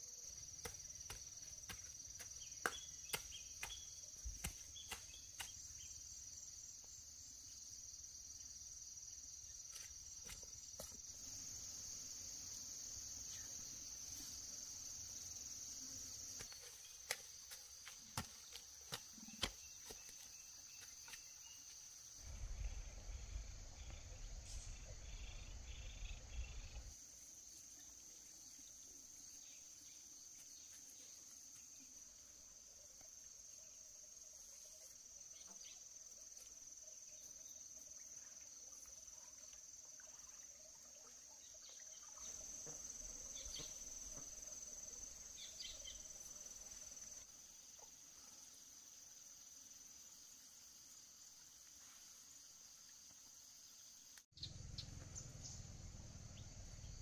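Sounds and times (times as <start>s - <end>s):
faint chirps: 19.1s - 26.9s
low rumble: 22.2s - 25.6s.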